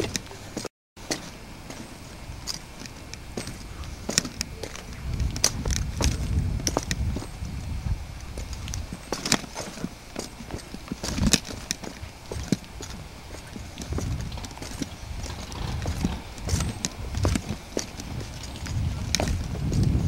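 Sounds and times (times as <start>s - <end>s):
low microphone rumble: 1.4s - 20.0s
boots and hands on rock: 8.3s - 20.0s.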